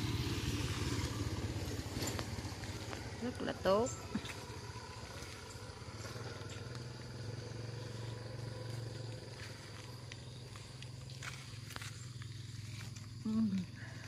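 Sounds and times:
small engine humming: 0:00.0 - 0:14.0.

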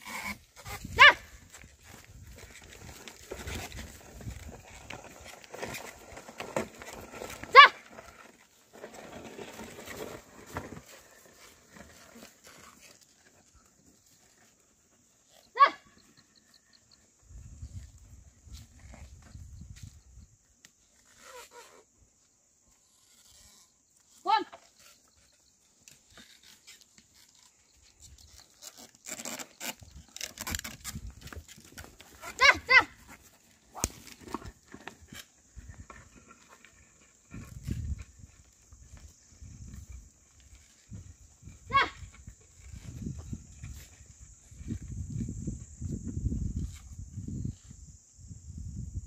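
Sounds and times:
plough scraping through soil: 0:00.0 - 0:16.6, 0:20.8 - 0:21.9, 0:22.7 - 0:45.4
footsteps on earth: 0:00.9 - 0:14.6, 0:29.8 - 0:46.2.

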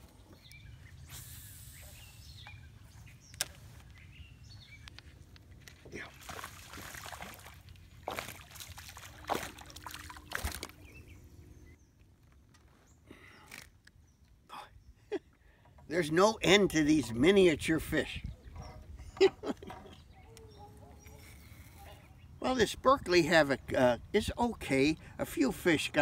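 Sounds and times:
splashing on lake surface: 0:05.9 - 0:10.9
wind rumble on microphone: 0:17.8 - 0:20.2.

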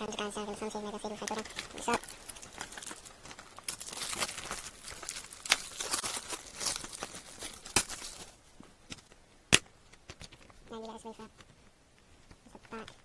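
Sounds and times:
plastic case rustling: 0:00.9 - 0:09.2.

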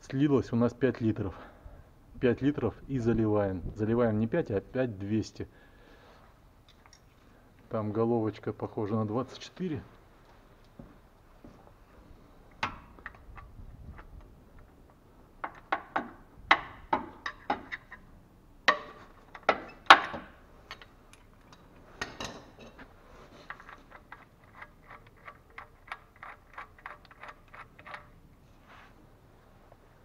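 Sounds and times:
metal clicks and knocks: 0:12.5 - 0:14.7, 0:15.4 - 0:18.0, 0:18.6 - 0:22.9, 0:23.5 - 0:28.2.

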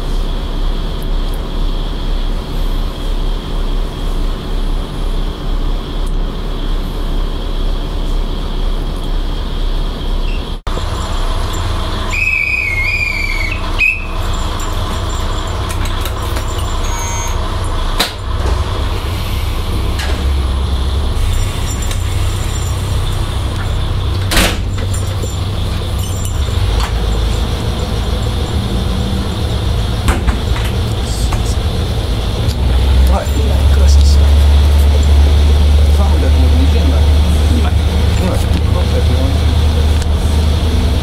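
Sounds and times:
railcar diesel engine rumble: 0:00.0 - 0:41.0
high whistle: 0:12.0 - 0:15.4, 0:16.7 - 0:17.4
sharp knocks: 0:30.0 - 0:31.5.

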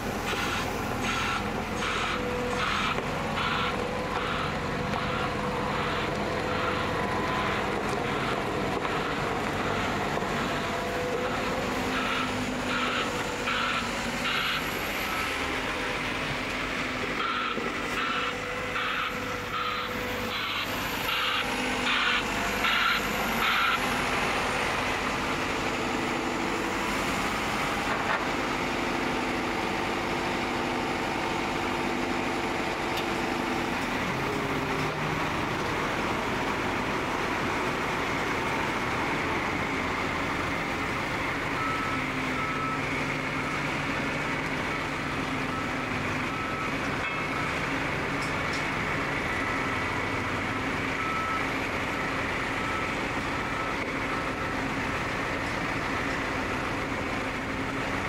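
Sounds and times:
heavy machine diesel engines: 0:00.0 - 0:58.0
reversing alarm beeping: 0:00.3 - 0:26.9, 0:39.4 - 0:57.0.

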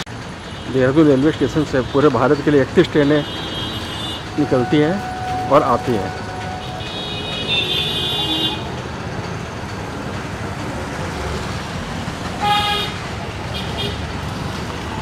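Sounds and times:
road traffic rumble: 0:00.0 - 0:15.0
vehicle horns honking: 0:00.4 - 0:08.8, 0:12.4 - 0:14.1.

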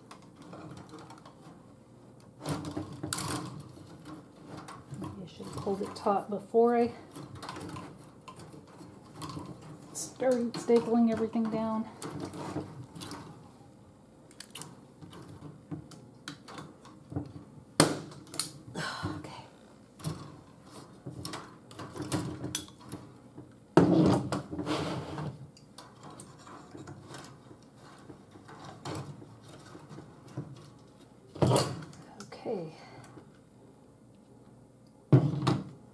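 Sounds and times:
wire rattling: 0:02.3 - 0:13.5.

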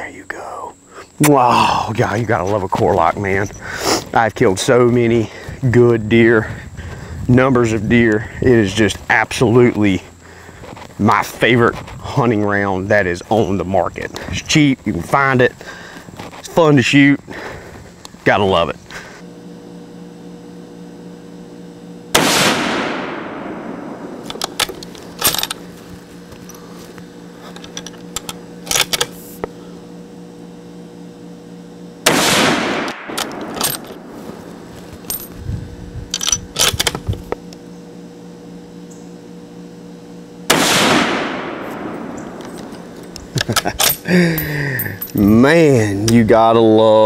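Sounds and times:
rifle shots with echo: 0:22.2 - 0:24.2, 0:32.0 - 0:33.6, 0:40.5 - 0:42.2
rifle bolt metallic clicks: 0:24.2 - 0:25.6, 0:32.8 - 0:34.0.

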